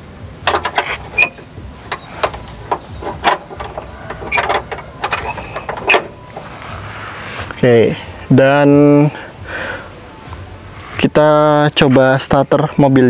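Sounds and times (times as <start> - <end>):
hand clicking and tapping on seat: 1.9 - 6.1.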